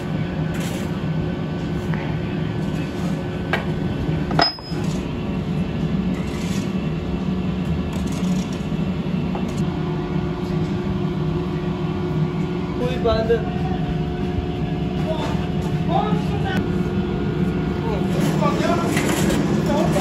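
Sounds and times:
steady machine hum: 0.0 - 20.0
metallic clink with ring: 4.3 - 4.9
sand shovelled and scraped: 6.1 - 6.8.

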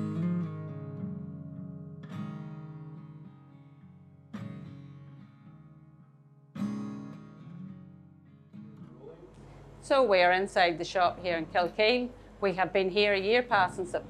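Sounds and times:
acoustic guitar strumming chords: 0.0 - 9.8.

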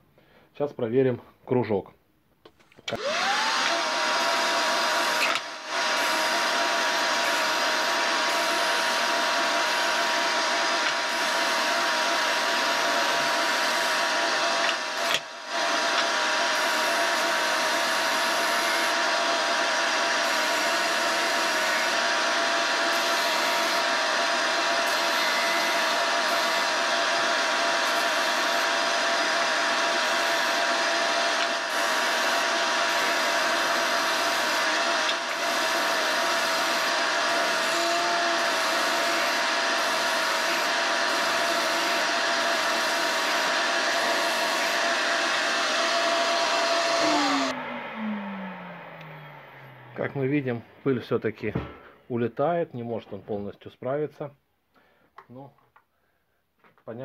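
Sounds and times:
sander grinding wood: 2.9 - 51.0
dust extraction vacuum running: 2.9 - 51.9.

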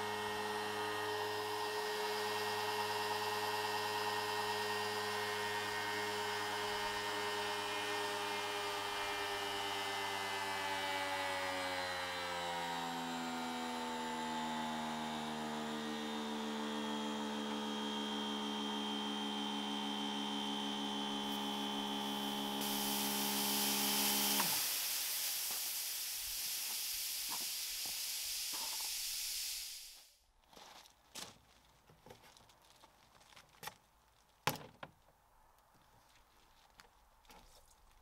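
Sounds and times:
pressure washer pump whining: 0.0 - 11.5, 12.2 - 30.0
water spraying hiss: 22.0 - 30.2.

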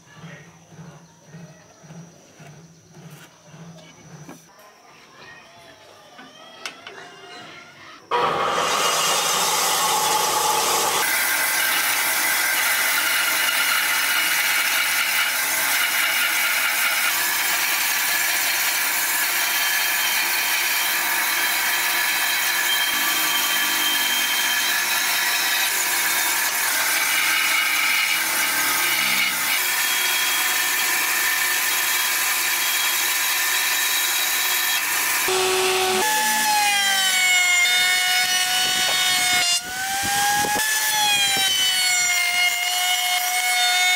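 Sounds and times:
power tool motor whine: 8.1 - 14.0, 19.2 - 43.9
band saw cutting wood: 8.1 - 43.9.

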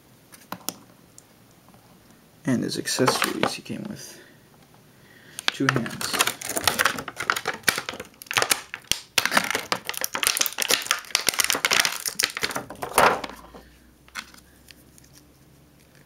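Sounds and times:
plastic bag crinkling: 3.0 - 3.6, 5.4 - 14.4.

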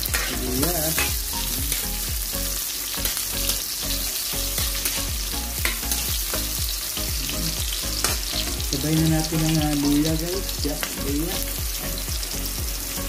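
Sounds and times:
metal spatula scraping a pan: 0.0 - 1.9
onion and garlic sizzling in oil: 0.0 - 13.0.

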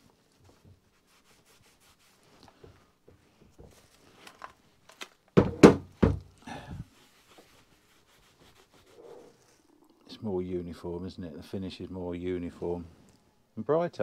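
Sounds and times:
cloth rubbing on metal casing: 0.0 - 4.8, 6.8 - 9.7.

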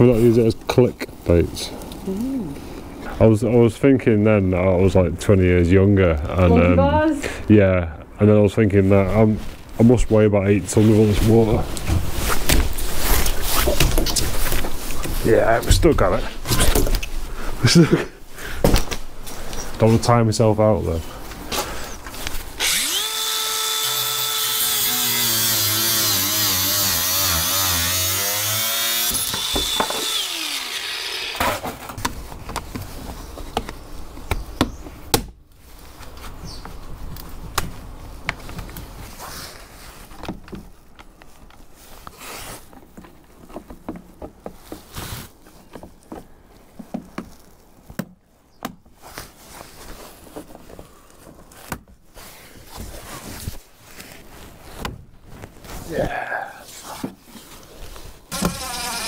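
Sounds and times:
angle grinder cutting plastic: 22.6 - 31.8, 58.3 - 59.0.

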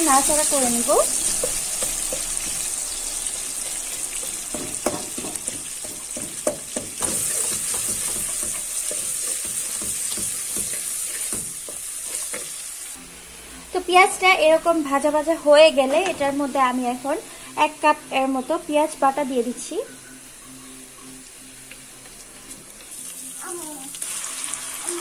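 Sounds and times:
onions sizzling in hot oil: 0.0 - 13.0, 13.7 - 25.0.

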